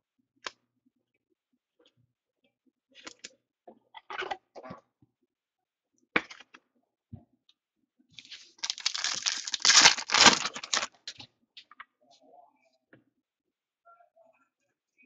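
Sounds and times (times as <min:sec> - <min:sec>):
foil wrapper crinkling and tearing: 0:08.2 - 0:11.1
cards clicking and rustling: 0:08.2 - 0:11.2.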